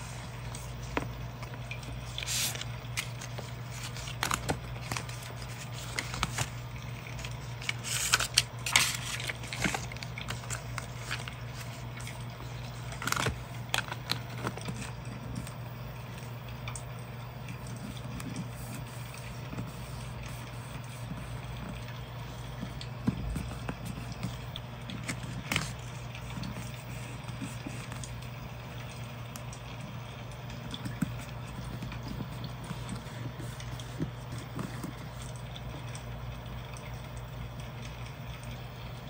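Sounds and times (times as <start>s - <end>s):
paper rustling and crinkling: 0.0s - 15.6s, 17.8s - 28.3s, 30.7s - 35.4s.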